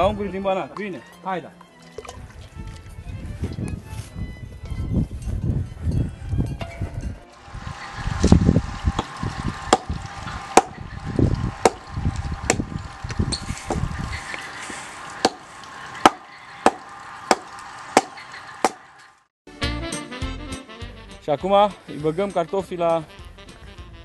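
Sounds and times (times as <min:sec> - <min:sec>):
axe blows chopping wood: 0:10.6 - 0:10.8, 0:15.2 - 0:15.4, 0:16.0 - 0:17.4, 0:18.0 - 0:18.8.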